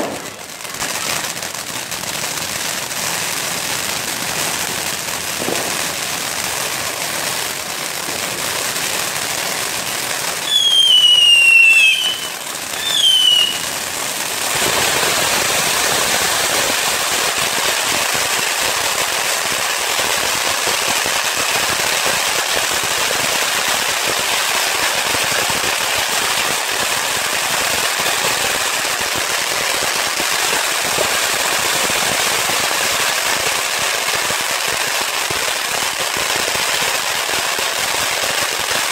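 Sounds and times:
fireworks hissing and crackling: 0:00.0 - 0:38.9
firework whistles falling in pitch: 0:10.4 - 0:13.7.

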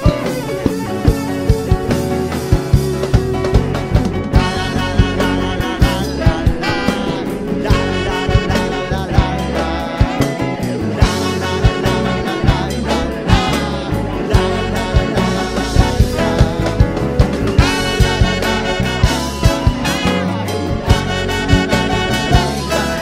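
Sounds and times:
saxophone: 0:00.0 - 0:03.6, 0:04.2 - 0:23.0
bass guitar: 0:00.0 - 0:23.0
keyboard: 0:00.0 - 0:23.0
steady drum beat: 0:00.0 - 0:23.0
trumpet: 0:04.3 - 0:23.0.

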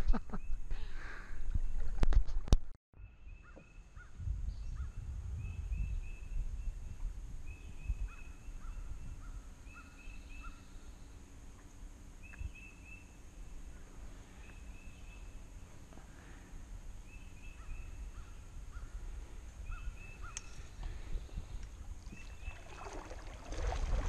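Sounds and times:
wind rumble on microphone: 0:00.0 - 0:09.8, 0:16.8 - 0:24.0.

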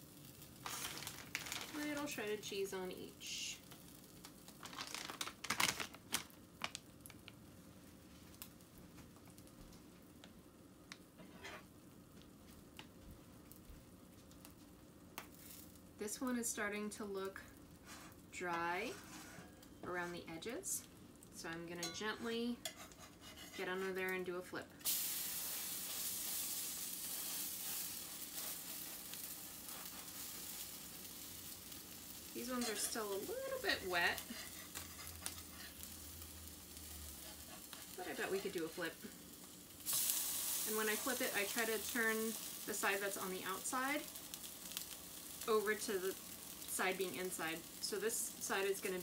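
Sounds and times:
pancakes sizzling in oil: 0:00.0 - 0:12.8, 0:13.4 - 0:19.7, 0:24.8 - 0:49.0
plastic bag crinkling: 0:00.4 - 0:02.4, 0:04.0 - 0:07.4.

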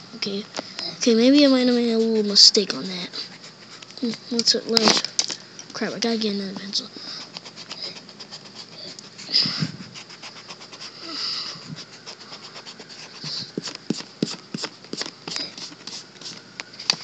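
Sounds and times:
pencil scratching on paper: 0:01.1 - 0:04.2, 0:07.2 - 0:11.0, 0:11.6 - 0:16.4.

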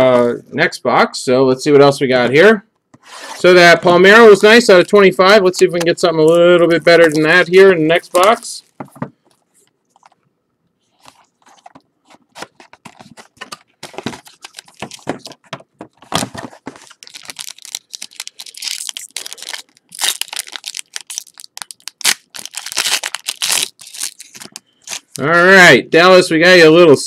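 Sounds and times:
plastic wrapping tearing and crinkling: 0:11.0 - 0:15.4, 0:16.5 - 0:25.2.

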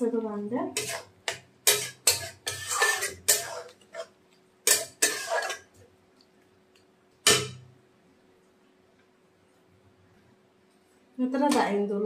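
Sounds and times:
metal spatula scraping a pan: 0:00.7 - 0:05.7, 0:07.3 - 0:07.6
spatula clanking on metal pan: 0:00.8 - 0:05.7, 0:07.2 - 0:07.7.

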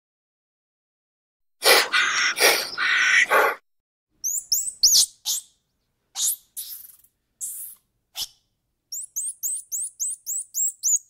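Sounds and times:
harsh noisy animal call: 0:01.6 - 0:03.6
high-pitched chirps: 0:04.2 - 0:05.5.

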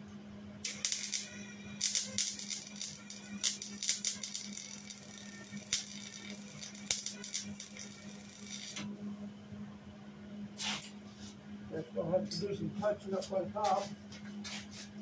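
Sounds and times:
steady low hum: 0:00.0 - 0:15.0
welder arc crackling: 0:00.6 - 0:08.9.

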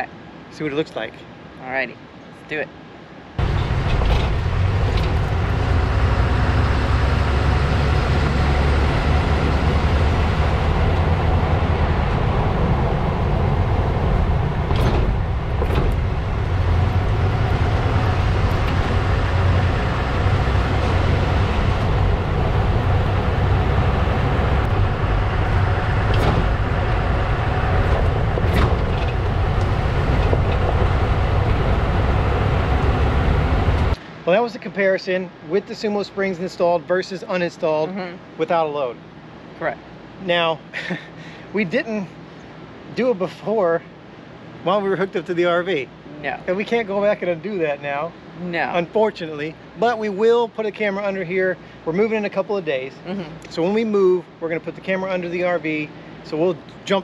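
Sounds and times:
road and tyre rumble: 0:00.0 - 0:34.4
wind on microphone: 0:08.2 - 0:34.0.

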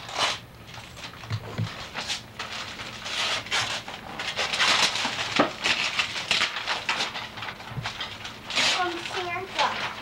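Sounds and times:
rustling and rubbing: 0:00.0 - 0:10.0.

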